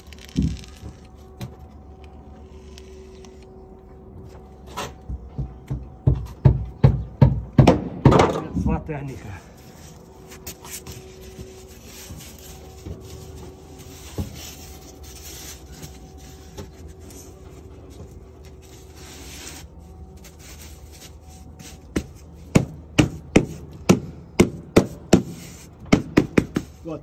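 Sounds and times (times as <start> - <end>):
insulation board rubbing and scraping: 9.5 - 22.2.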